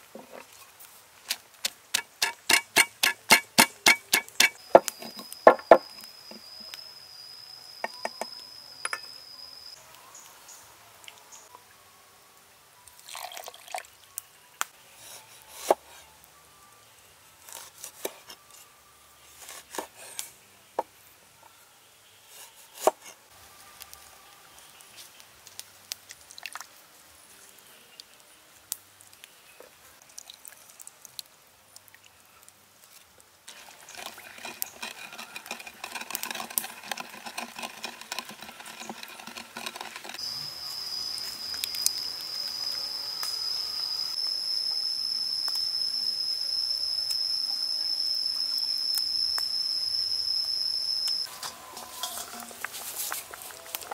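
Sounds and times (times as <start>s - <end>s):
spoon tapping wooden mortar: 1.9s - 4.9s, 5.5s - 5.9s, 34.0s - 40.2s
crickets: 2.2s - 10.6s, 33.6s - 53.9s
juice dripping: 25.5s - 26.8s, 33.5s - 44.8s
steady high chirp: 40.2s - 52.4s.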